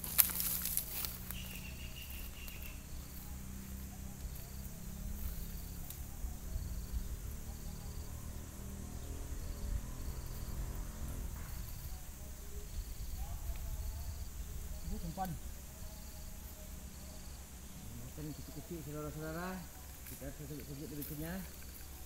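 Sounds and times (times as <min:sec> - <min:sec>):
brushing and rustling: 0:00.0 - 0:06.0
insect chirping: 0:00.0 - 0:22.0
low steady rumble: 0:00.0 - 0:22.0.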